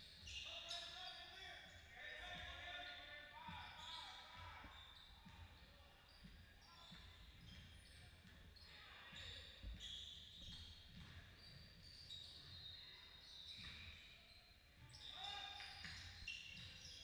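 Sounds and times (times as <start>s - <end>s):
shoe squeaks: 0.0s - 17.0s
basketball bouncing on court: 3.5s - 14.1s, 14.8s - 17.0s.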